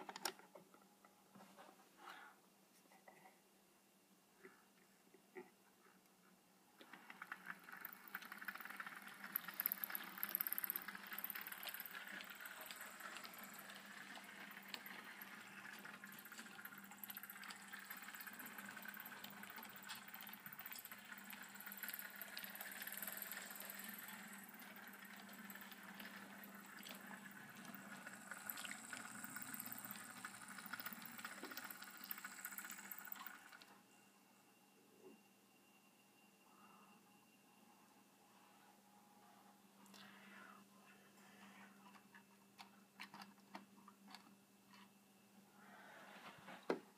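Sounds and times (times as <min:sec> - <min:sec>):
model train motors humming: 0:06.8 - 0:33.7
wheels rattling and clicking on track: 0:06.9 - 0:33.6.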